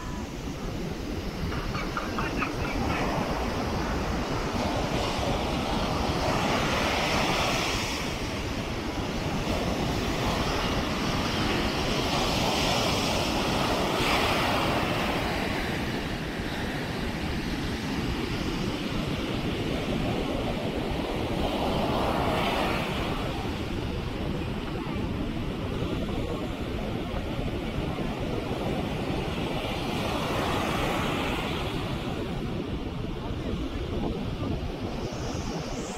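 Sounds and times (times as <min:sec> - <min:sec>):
waves breaking on beach: 0:00.0 - 0:35.9
wind rumble on microphone: 0:00.0 - 0:35.9.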